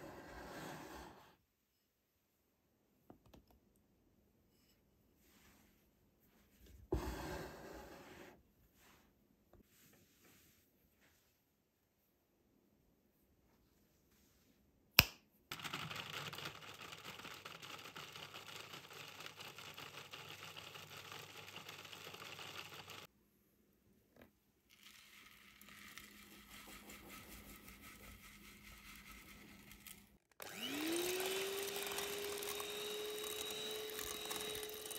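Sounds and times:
electric grinder grinding: 28.8 - 34.9
electric hand mixer whine: 28.9 - 34.9.

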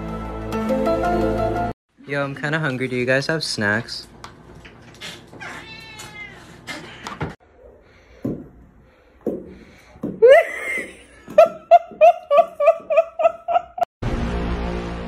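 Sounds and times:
cat meowing: 5.4 - 7.0
cat yowling: 5.4 - 7.0.

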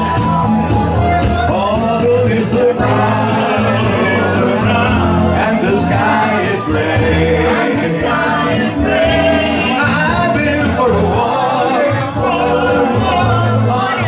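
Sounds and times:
musical backing with bass line: 0.0 - 14.0
men singing together: 1.5 - 14.0.

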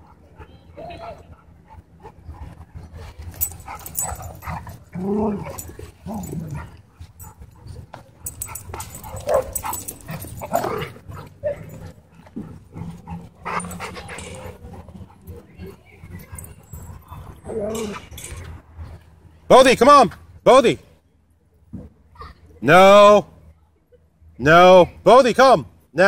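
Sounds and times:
dogs whining and yipping: 3.3 - 7.6, 8.2 - 11.9.

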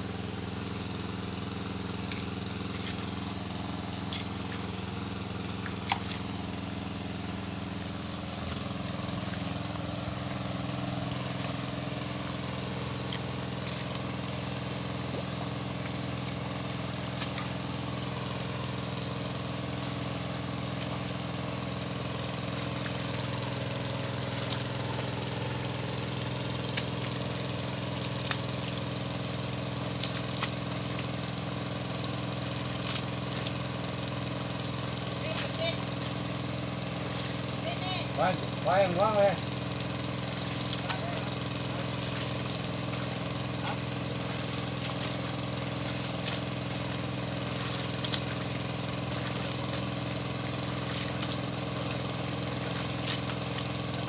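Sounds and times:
small engine running: 0.0 - 54.0
water rushing from outlet: 0.0 - 54.0.

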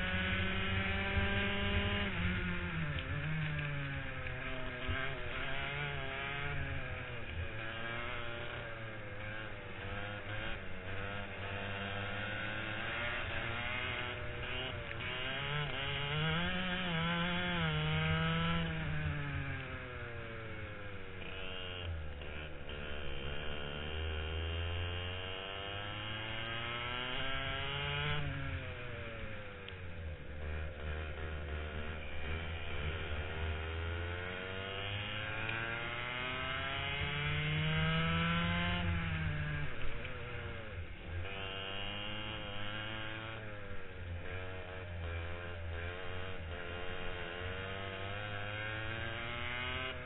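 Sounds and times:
kart two-stroke engine buzzing: 0.0 - 50.0.

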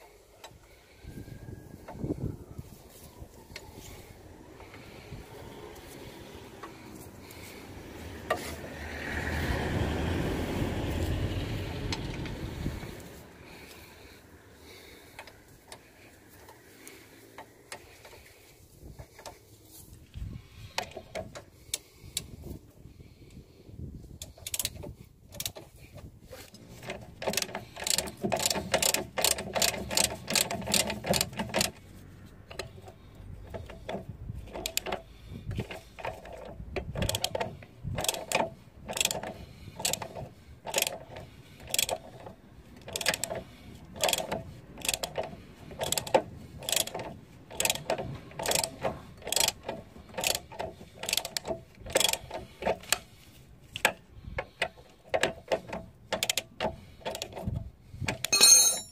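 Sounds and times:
ratchet wrench clicking: 26.8 - 31.8, 34.5 - 43.4, 44.0 - 53.0.

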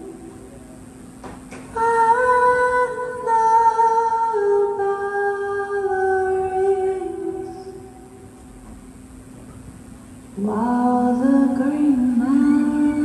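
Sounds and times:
faint steady hum: 0.0 - 13.0
slow melody of long held notes: 10.4 - 13.0.

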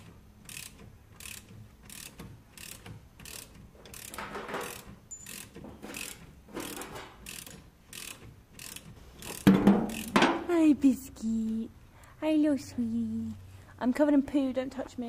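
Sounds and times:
ratchet spanner clicking: 0.0 - 10.4.

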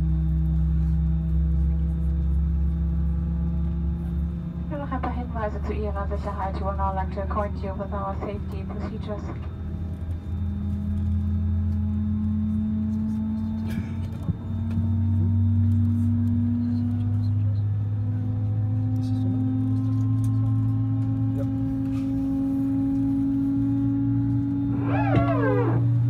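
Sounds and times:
jet engine spooling up: 24.2 - 26.0.

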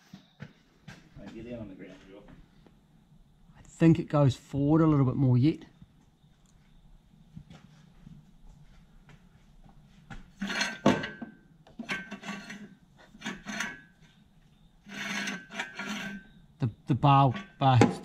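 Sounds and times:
metal bar scraping through tube: 10.4 - 11.2, 11.8 - 14.1, 14.8 - 16.4, 17.2 - 17.7.

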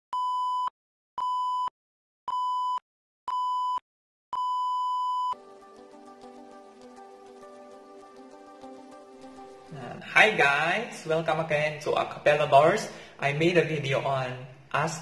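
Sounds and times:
countdown beeps: 2.3 - 3.8, 4.4 - 5.4
background music with sustained chords: 5.4 - 11.1.

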